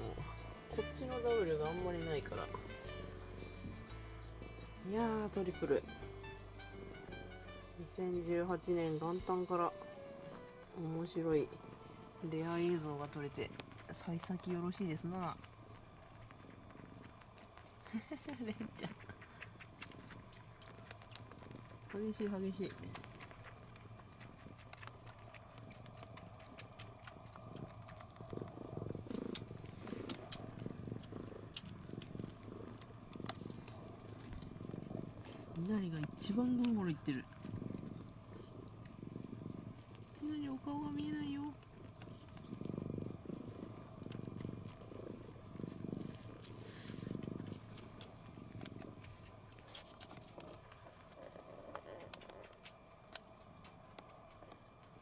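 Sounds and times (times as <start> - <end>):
cats purring: 0.0 - 55.0
faint smacking clicks of suckling: 13.1 - 40.2, 41.4 - 55.0.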